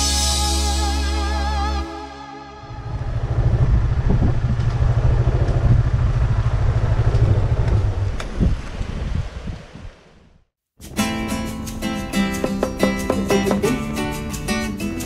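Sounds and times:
motorcycle engine rumbling: 0:02.6 - 0:09.4.

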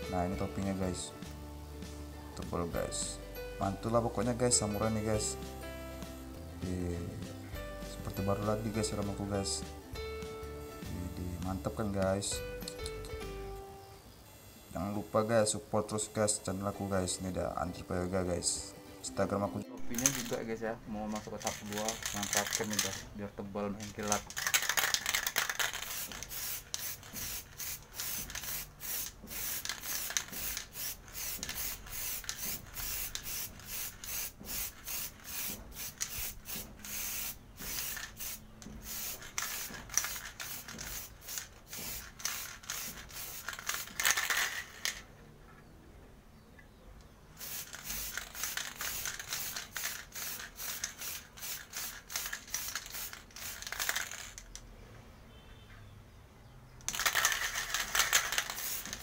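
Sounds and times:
aerosol can spraying bursts: 0:19.8 - 0:20.5, 0:21.1 - 0:23.0, 0:23.9 - 0:44.6, 0:47.4 - 0:54.3, 0:56.9 - 0:59.0.

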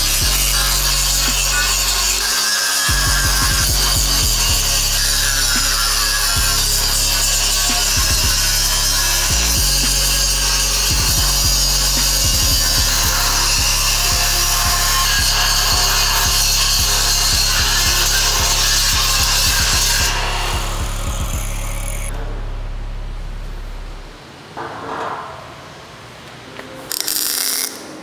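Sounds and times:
power saw cutting wood: 0:00.0 - 0:22.4
background music: 0:00.0 - 0:24.2.

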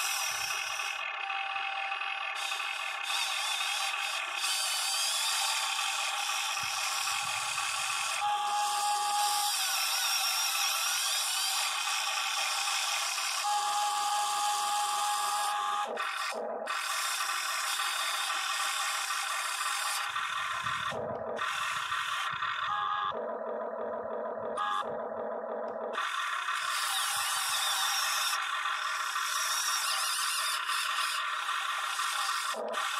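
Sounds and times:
electric motors whining: 0:00.0 - 0:32.9.

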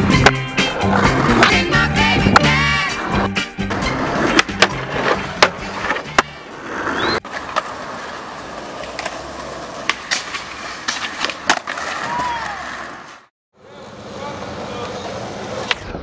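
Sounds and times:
skateboard wheels rolling on pavement: 0:00.0 - 0:16.0
skateboard clacking on concrete: 0:00.1 - 0:02.8, 0:08.5 - 0:13.0.

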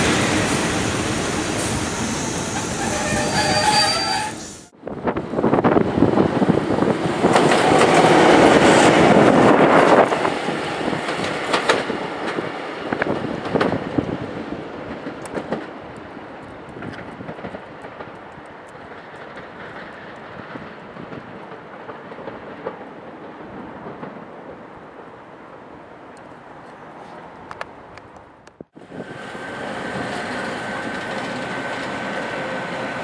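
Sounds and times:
diesel locomotive passing: 0:00.0 - 0:28.0, 0:28.8 - 0:33.0
wheels clacking over rail joints: 0:07.1 - 0:25.2.

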